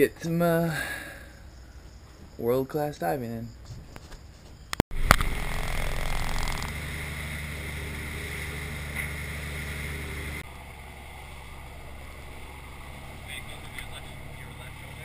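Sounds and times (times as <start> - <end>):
boat engine humming: 4.9 - 15.0.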